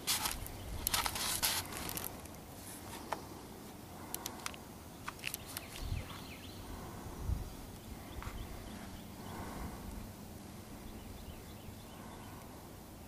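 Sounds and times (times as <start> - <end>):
sharp clicks and snaps: 4.1 - 5.9.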